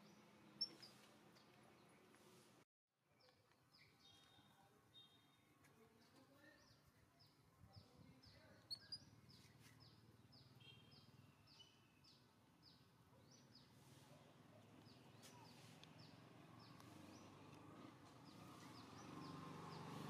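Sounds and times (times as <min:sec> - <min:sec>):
small bird chirping: 0:00.6 - 0:01.0, 0:06.0 - 0:13.8.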